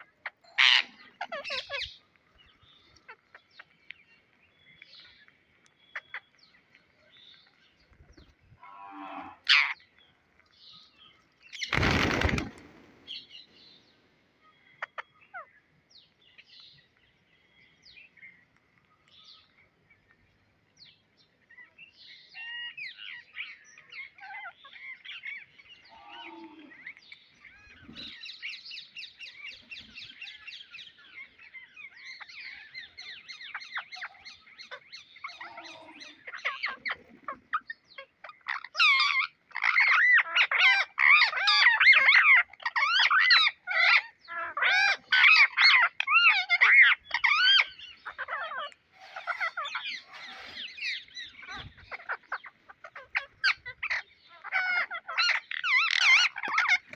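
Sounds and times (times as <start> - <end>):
parakeets calling: 0.0 - 3.7, 9.4 - 9.8, 14.8 - 15.5, 26.8 - 56.9.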